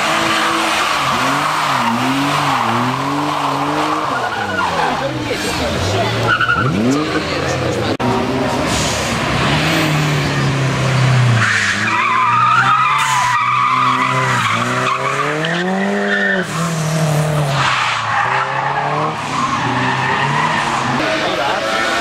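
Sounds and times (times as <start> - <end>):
tyres squealing on tarmac: 0.0 - 7.6, 11.3 - 22.0
car engine revving: 0.0 - 22.0.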